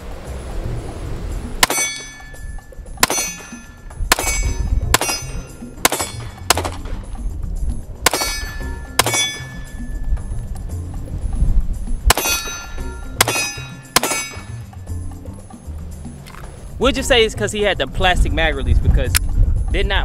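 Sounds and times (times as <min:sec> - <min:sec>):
ringing metallic clang: 0:01.6 - 0:06.9, 0:08.0 - 0:10.4, 0:12.1 - 0:14.9
pistol shots: 0:03.0 - 0:03.5, 0:04.1 - 0:07.0, 0:08.0 - 0:09.6, 0:12.1 - 0:14.6.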